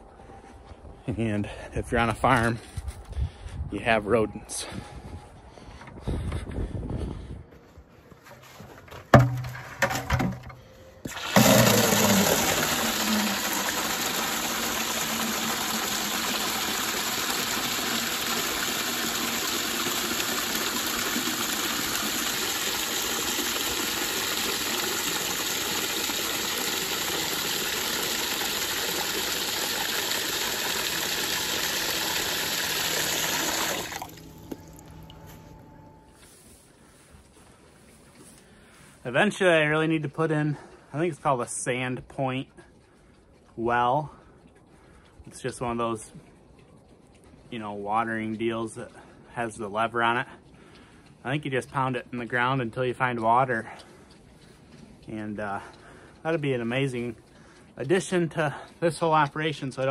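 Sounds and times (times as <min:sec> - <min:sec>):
knocks: 0:09.1 - 0:10.6
water pouring into plastic bucket: 0:09.2 - 0:35.4.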